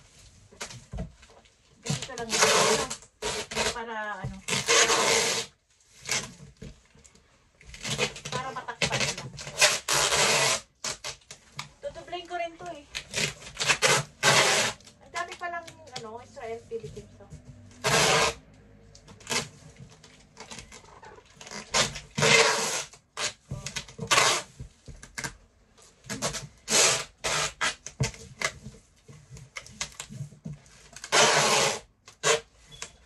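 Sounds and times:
packing tape pulled off roll: 0:01.9 - 0:03.8, 0:04.4 - 0:06.6, 0:07.7 - 0:11.7, 0:12.9 - 0:16.0, 0:17.7 - 0:18.4, 0:19.0 - 0:25.4, 0:26.1 - 0:28.6, 0:30.8 - 0:33.0
tape rubbed onto cardboard: 0:02.2 - 0:03.8, 0:04.4 - 0:06.4, 0:07.8 - 0:11.4, 0:13.0 - 0:15.3, 0:17.8 - 0:18.4, 0:20.4 - 0:25.3, 0:26.1 - 0:28.8, 0:31.0 - 0:32.8.

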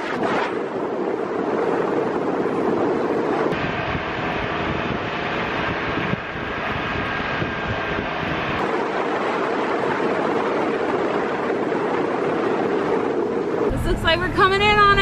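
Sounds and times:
wind buffeting microphone: 0:00.0 - 0:15.0
truck engine and tyre noise: 0:03.5 - 0:11.2.

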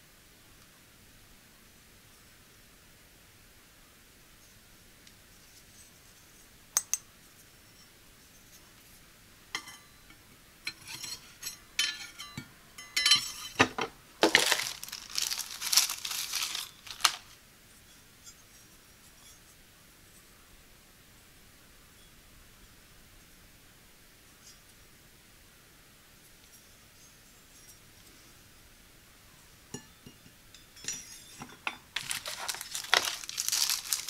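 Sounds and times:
plastic wrap crinkling: 0:14.2 - 0:17.4, 0:31.9 - 0:34.0
knives clinking: 0:32.0 - 0:34.0.

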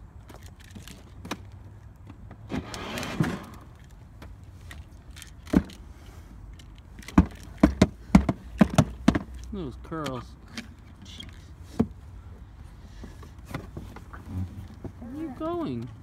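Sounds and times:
brief scraping noise: 0:02.5 - 0:03.7
plastic toy car knocking: 0:07.0 - 0:09.4.

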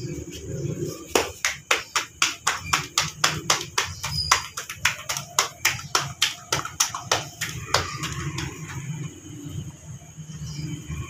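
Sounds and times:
dough slapped between palms: 0:01.1 - 0:08.8.

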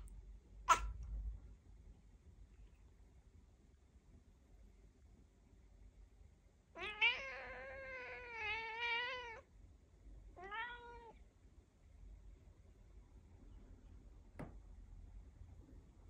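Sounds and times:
cat meowing: 0:06.8 - 0:09.5, 0:10.4 - 0:11.2.

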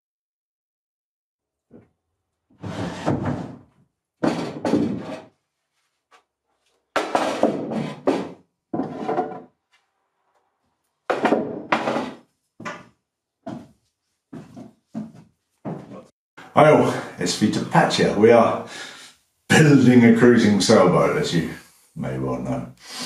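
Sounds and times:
wooden knocks and scuffs: 0:04.2 - 0:05.2, 0:07.0 - 0:09.4, 0:11.1 - 0:16.1.

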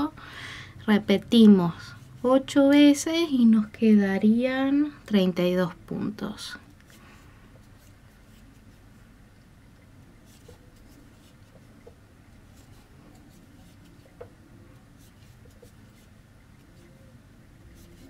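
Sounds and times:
crochet yarn rustling: 0:06.8 - 0:09.0, 0:10.2 - 0:18.0.

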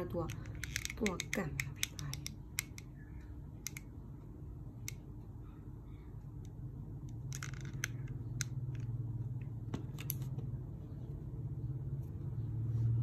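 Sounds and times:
sharp clicks and snips: 0:00.0 - 0:02.9
steady low hum: 0:00.0 - 0:13.0.

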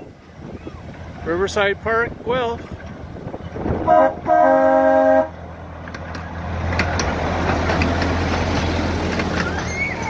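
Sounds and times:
train cars clicking on track: 0:00.8 - 0:04.4, 0:05.2 - 0:10.0
miniature train humming: 0:03.9 - 0:10.0.

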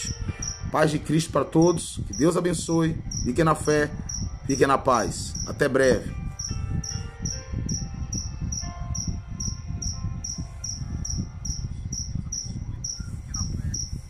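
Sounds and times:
cricket chirping: 0:00.0 - 0:00.7, 0:03.0 - 0:03.4, 0:04.1 - 0:04.4, 0:05.3 - 0:05.6, 0:06.4 - 0:14.0.

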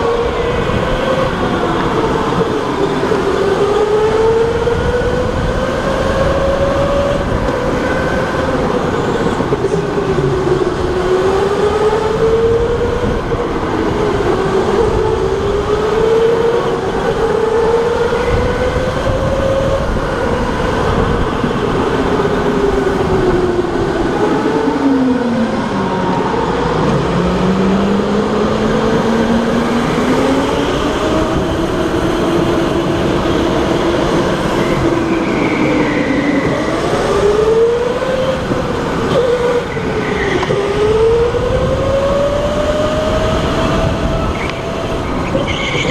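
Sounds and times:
tyre and road noise: 0:00.0 - 0:45.9.

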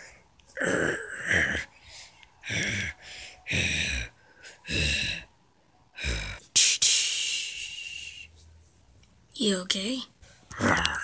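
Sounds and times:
person making breathy vocal sounds: 0:10.5 - 0:11.0.

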